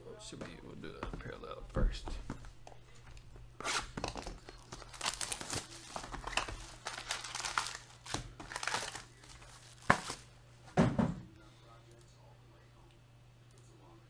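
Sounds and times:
card pack wrappers crinkling: 3.8 - 10.3.

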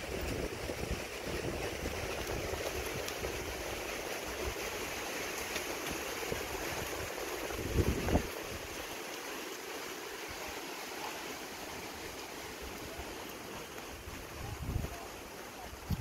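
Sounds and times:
wind buffeting microphone: 0.0 - 4.6, 6.3 - 8.8, 13.9 - 16.0
wind rustling leaves: 0.0 - 16.0.

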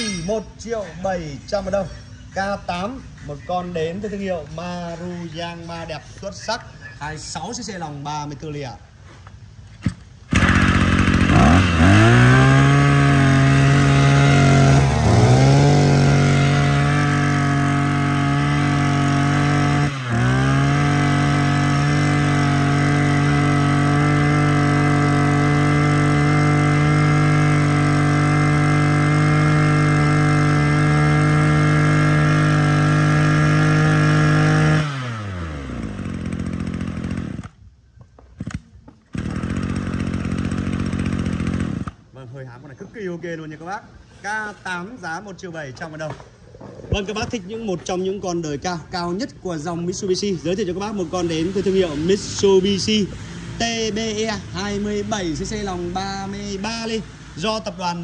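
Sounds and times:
brush cutter engine: 10.3 - 37.6, 38.4 - 42.1, 50.0 - 58.0.

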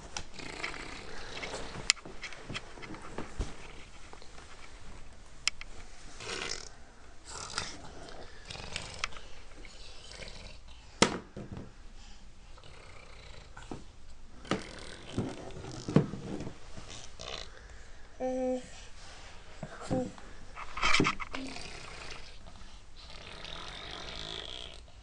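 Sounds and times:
plastic packaging and cloth rustling: 1.0 - 6.2.

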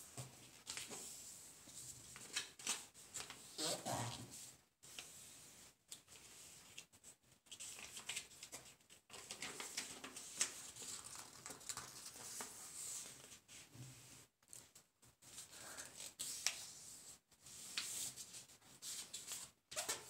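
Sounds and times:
paper being folded: 2.0 - 3.6, 5.9 - 13.4.

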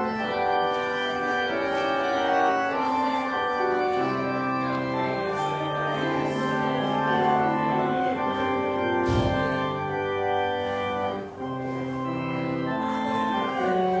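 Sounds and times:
organ playing sustained chords: 0.0 - 14.0
low thump: 9.0 - 9.7.

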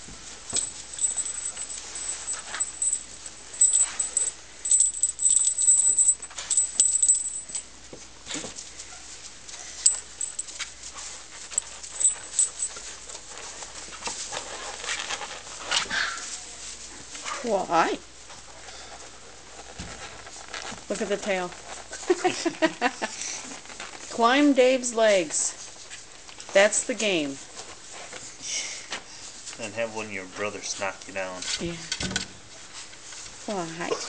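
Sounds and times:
puppies scuffling in wood shavings: 10.5 - 28.4.

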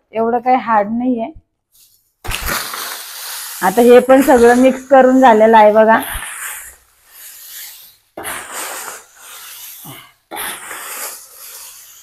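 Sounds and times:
dried spices rustling and crackling: 1.8 - 6.0.

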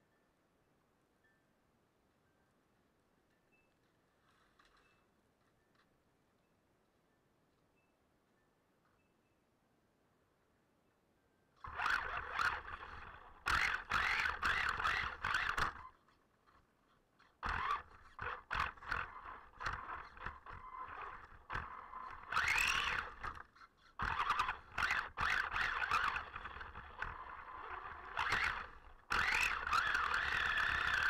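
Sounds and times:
electric toy car motor whining: 11.6 - 16.3, 17.2 - 31.0.

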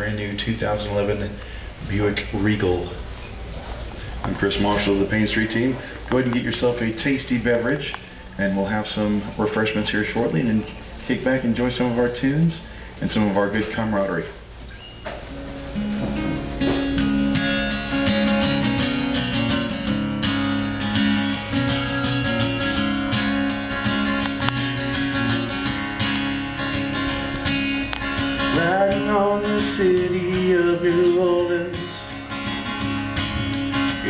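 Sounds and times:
acoustic guitar strummed and picked: 14.7 - 34.0.

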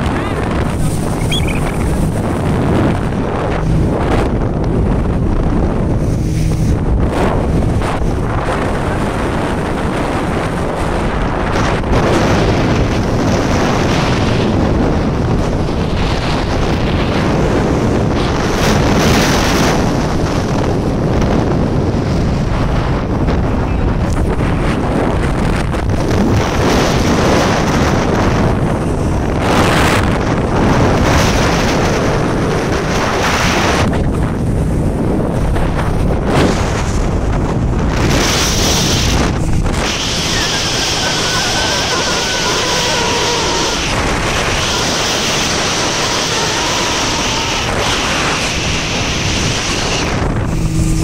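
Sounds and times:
boat water noise: 0.0 - 51.0
outboard motor running: 0.0 - 51.0
wind buffeting microphone: 0.0 - 51.0
hiss of churning wake: 35.7 - 51.0.

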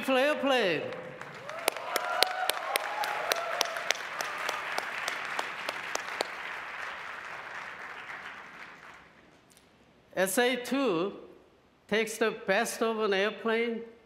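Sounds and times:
large audience applauding: 0.8 - 9.4.

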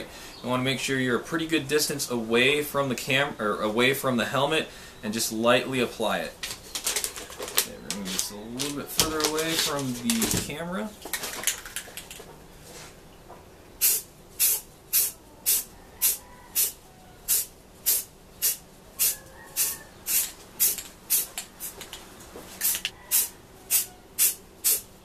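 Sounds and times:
spray paint can hissing: 13.8 - 21.9, 22.6 - 24.9.

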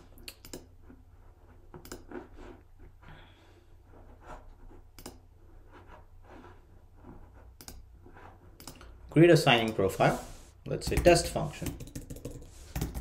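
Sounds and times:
computer mouse clicks: 0.2 - 0.7, 1.8 - 2.1, 4.9 - 5.2, 7.6 - 7.9, 8.6 - 8.9.

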